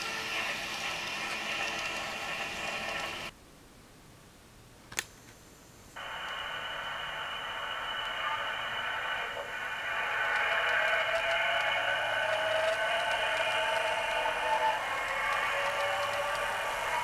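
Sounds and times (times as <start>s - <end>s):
model train motor whine: 0.0s - 3.3s, 6.0s - 17.0s
sharp click: 4.9s - 5.3s.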